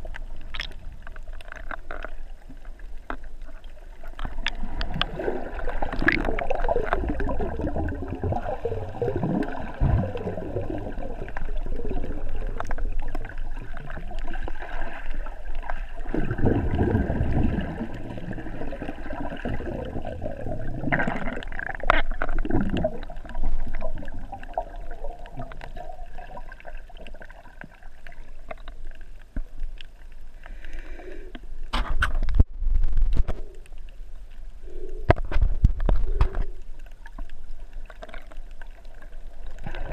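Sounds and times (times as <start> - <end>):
muffled underwater bubbling: 0.0 - 31.0, 32.5 - 39.9
water gurgling surges: 3.8 - 28.5, 37.8 - 39.9.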